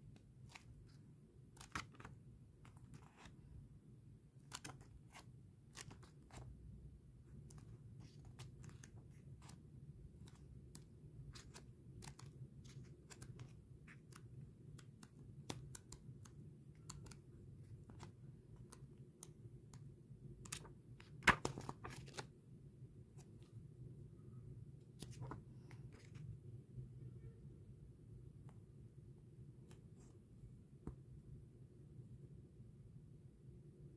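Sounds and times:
paper pages rustling and turning: 0:00.2 - 0:03.4, 0:04.4 - 0:06.6, 0:07.4 - 0:19.8, 0:20.4 - 0:22.3, 0:24.9 - 0:26.4.

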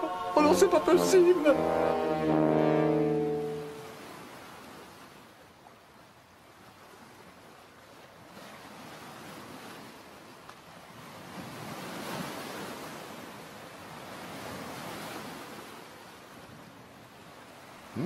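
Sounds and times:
wave breaking: 0:00.0 - 0:04.4
wind: 0:00.0 - 0:18.0.

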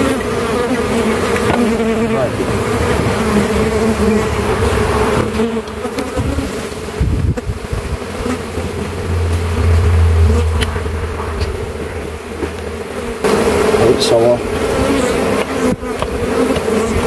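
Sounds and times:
honeybees buzzing: 0:00.0 - 0:17.0
low rumble: 0:07.7 - 0:13.7.

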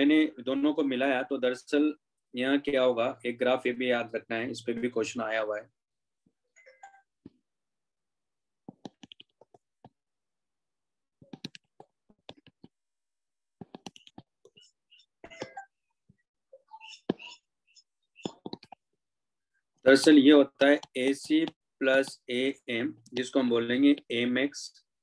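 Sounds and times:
marker tapping and scratching on paper: 0:08.6 - 0:10.0, 0:11.2 - 0:15.6, 0:16.9 - 0:18.9, 0:20.6 - 0:22.3.

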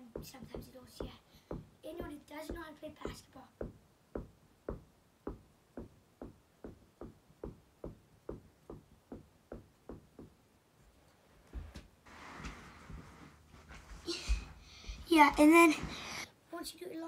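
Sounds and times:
ball bouncing on carpet: 0:00.0 - 0:10.4
heavy thumps: 0:00.0 - 0:10.4
rustling: 0:10.8 - 0:16.2.

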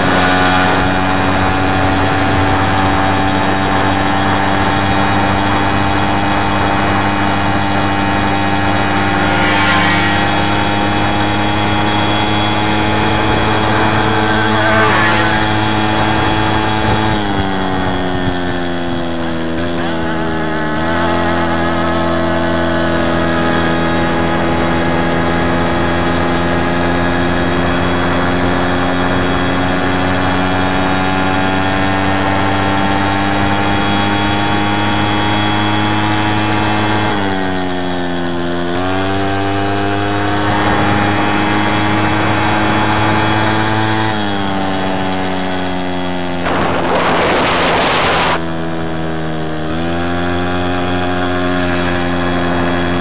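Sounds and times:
moped engine running: 0:00.0 - 0:53.0.

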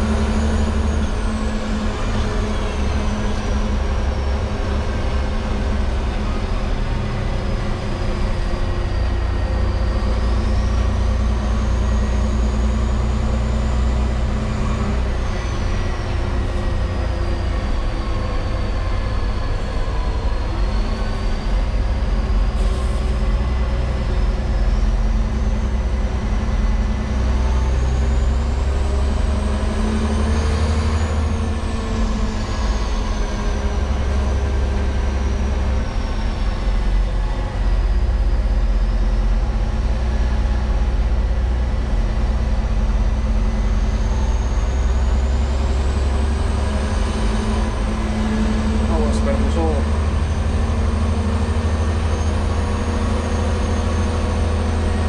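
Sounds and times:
diesel engine running: 0:00.0 - 0:55.0
high whine rising and falling: 0:46.2 - 0:50.4.

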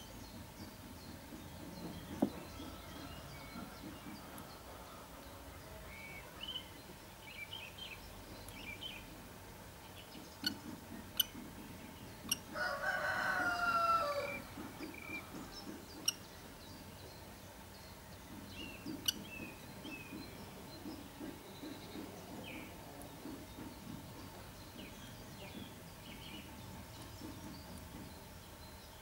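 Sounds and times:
rooster crowing: 0:12.6 - 0:14.4.

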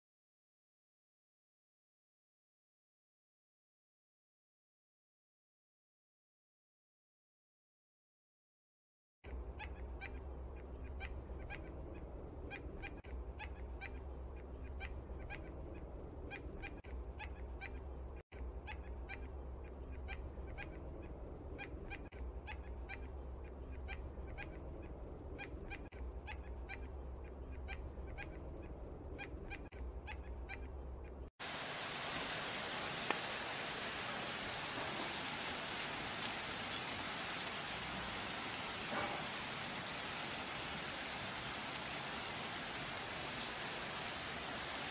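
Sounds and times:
toucan calling: 0:09.3 - 0:31.2
steady hiss: 0:31.4 - 0:44.9.

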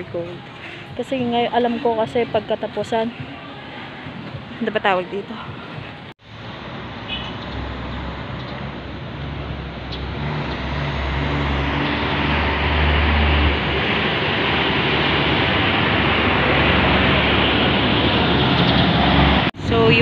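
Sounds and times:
road traffic noise: 0:00.0 - 0:20.0
vehicle engine humming: 0:00.0 - 0:20.0.

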